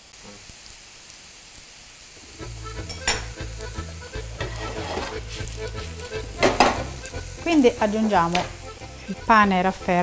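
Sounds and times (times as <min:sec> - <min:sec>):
potatoes sizzling in oil: 0:00.0 - 0:10.0
spatula scraping a pan: 0:04.2 - 0:05.6.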